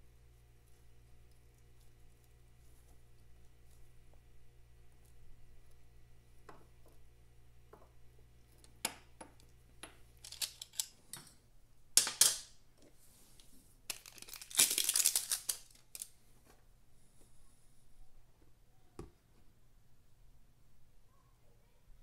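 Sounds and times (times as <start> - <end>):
packaging crinkling and rustling: 13.9 - 16.2.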